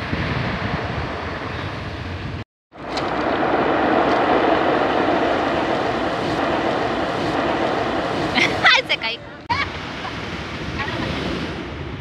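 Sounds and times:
wind buffeting microphone: 0.0s - 12.0s
surf washing on pebble beach: 2.8s - 11.7s.

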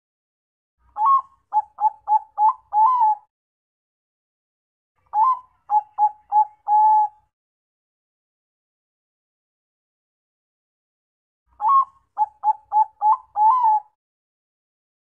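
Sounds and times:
dove cooing: 1.0s - 3.3s, 5.1s - 7.2s, 11.6s - 14.0s.

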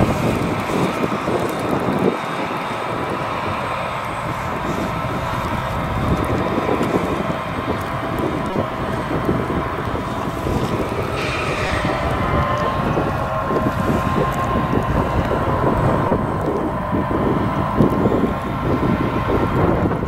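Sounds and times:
diesel engine rumble: 0.0s - 20.0s
machine whine: 0.0s - 20.0s
wind buffeting microphone: 0.0s - 20.0s.

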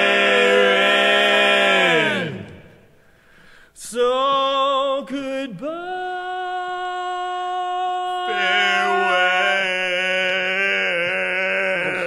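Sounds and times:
barbershop quartet singing: 0.0s - 2.8s, 3.8s - 12.0s
man singing a high note: 3.8s - 12.0s.

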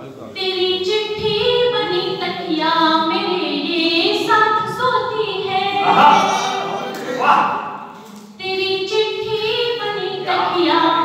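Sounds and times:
woman singing unaccompanied: 0.4s - 6.1s, 8.4s - 11.0s.

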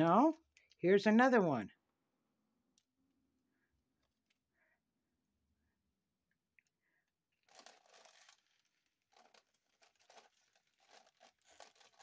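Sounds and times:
plastic bags crinkling: 7.4s - 12.0s.

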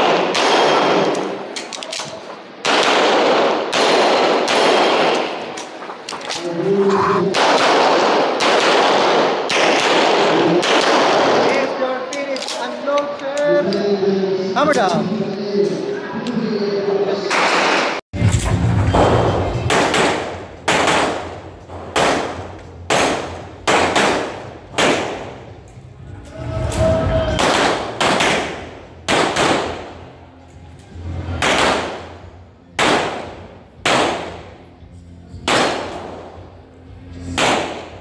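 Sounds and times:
pistol shots with echo: 0.0s - 11.8s, 17.3s - 18.0s, 19.0s - 25.5s, 27.4s - 30.0s, 31.4s - 34.6s, 35.4s - 36.4s, 37.3s - 38.0s.

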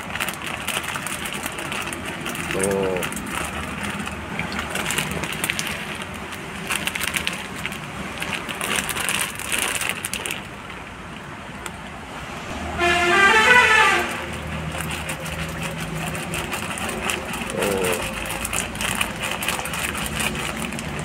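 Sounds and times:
fish splashing in water: 0.0s - 21.0s
horn-like tone: 12.5s - 14.3s.

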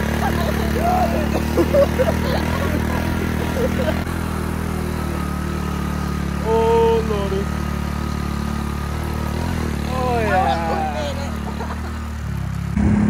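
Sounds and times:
motorbike engine running: 0.0s - 13.0s
short pitched sound: 12.8s - 13.0s.

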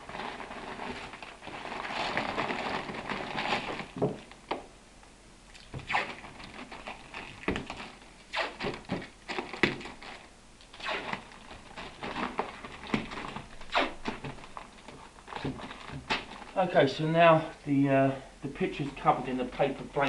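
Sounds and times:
paper rustling and tapping: 0.1s - 4.7s, 11.1s - 16.6s
tape being torn off a roll: 5.6s - 11.4s, 12.0s - 14.6s.

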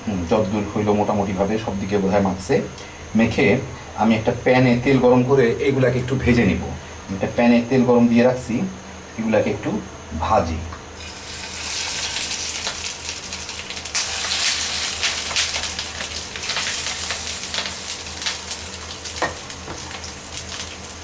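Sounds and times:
fish roe sizzling in oil: 11.0s - 21.0s
oil popping and crackling: 11.0s - 21.0s.

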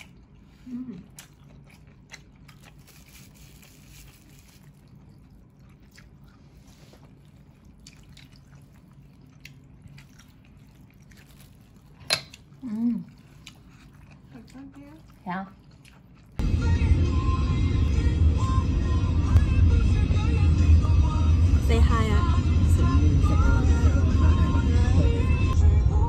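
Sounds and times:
chewing sounds: 0.0s - 16.4s
low steady hum: 0.0s - 26.0s.

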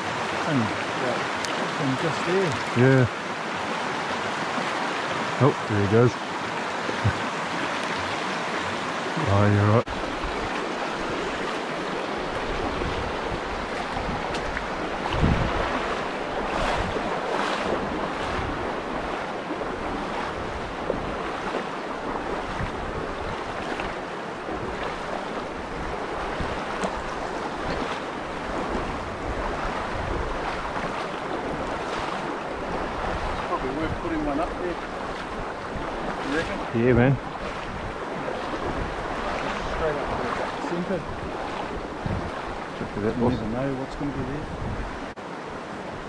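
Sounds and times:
stream rushing over stones: 0.0s - 46.0s
wind buffeting microphone: 9.9s - 45.2s.

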